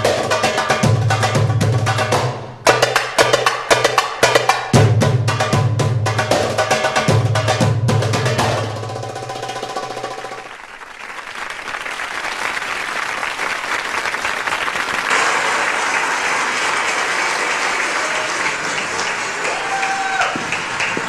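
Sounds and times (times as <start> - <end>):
belly-dance drum music: 0.0 - 10.5
audience applauding: 10.1 - 21.0.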